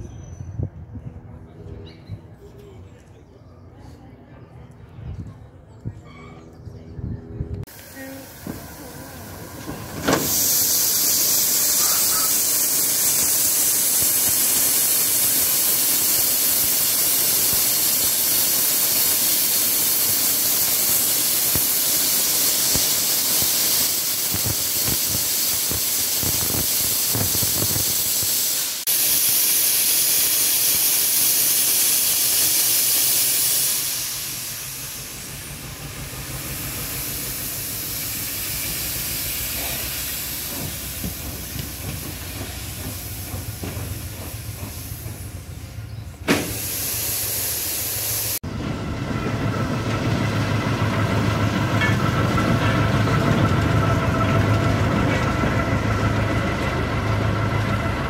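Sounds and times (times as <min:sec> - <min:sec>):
steam locomotive hissing steam: 0:07.7 - 0:48.6.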